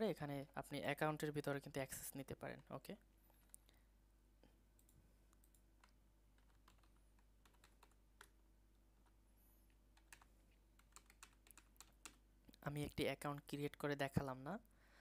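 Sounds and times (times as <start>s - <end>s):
faint keyboard keystrokes: 4.8s - 8.4s, 9.0s - 12.2s.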